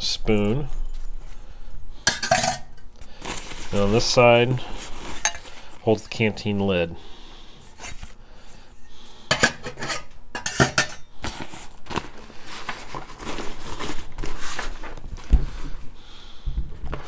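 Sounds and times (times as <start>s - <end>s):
metal cup lid clinking: 2.1s - 2.8s, 9.3s - 11.1s
nylon bag rustling: 3.1s - 6.1s, 11.2s - 15.8s.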